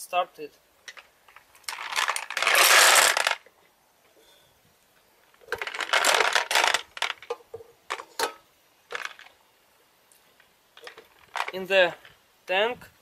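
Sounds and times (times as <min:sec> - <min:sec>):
ceramic balls rattling in tank: 0:01.6 - 0:03.4, 0:05.4 - 0:09.3, 0:10.8 - 0:12.0.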